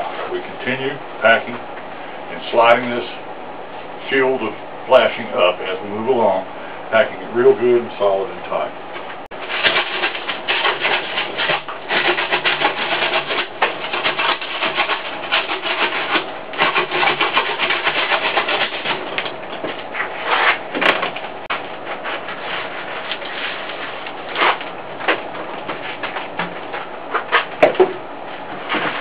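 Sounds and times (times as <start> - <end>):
cement scraping against metal: 9.3 - 29.0.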